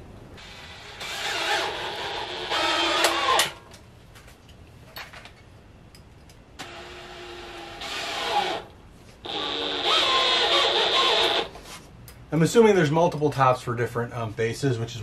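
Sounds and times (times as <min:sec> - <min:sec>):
cordless drill drilling wood: 0:00.4 - 0:03.6, 0:06.6 - 0:11.6.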